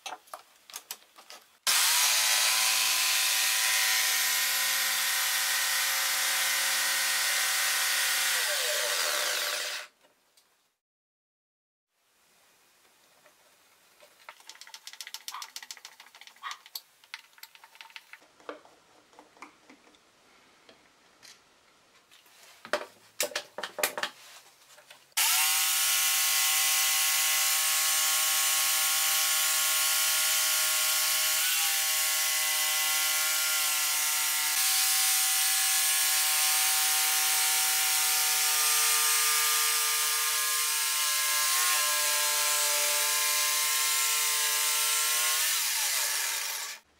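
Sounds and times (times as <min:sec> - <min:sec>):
jigsaw cutting wood: 0:01.7 - 0:10.0, 0:25.2 - 0:46.9.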